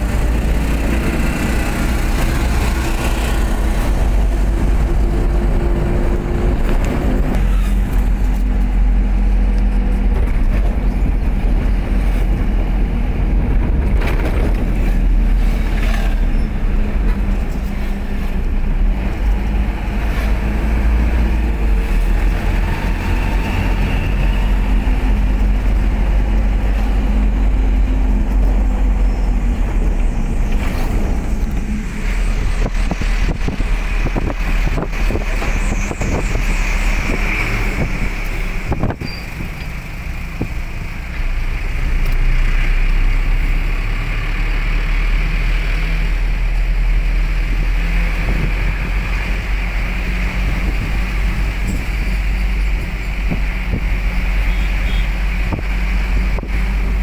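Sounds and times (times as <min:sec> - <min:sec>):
vehicle engine and road noise: 0:00.0 - 0:57.0.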